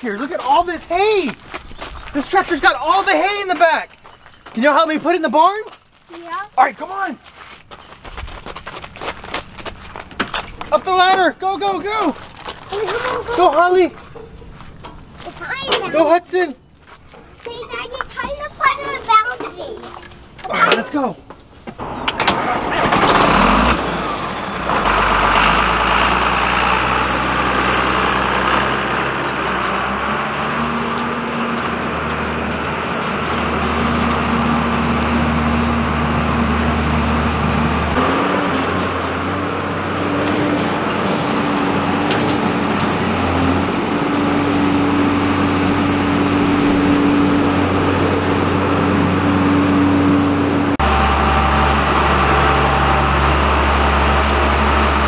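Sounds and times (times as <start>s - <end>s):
baler pulled along gravel: 0.0s - 55.0s
tractor diesel engine running: 21.8s - 55.0s.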